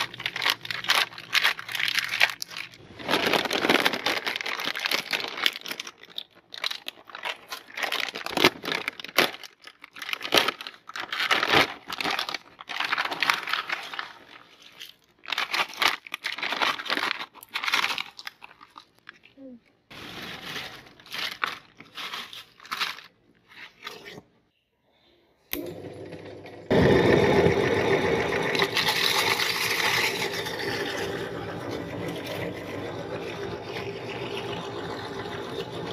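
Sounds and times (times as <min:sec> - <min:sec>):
chips spilling onto plastic tray: 0:00.0 - 0:18.6, 0:19.9 - 0:23.1
snack bag rustling: 0:00.0 - 0:24.2.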